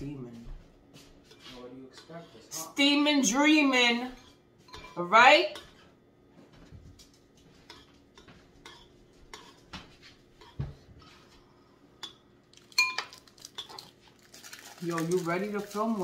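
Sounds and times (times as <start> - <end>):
metal spoon clinking in a bowl: 4.1 - 5.7, 12.0 - 13.9.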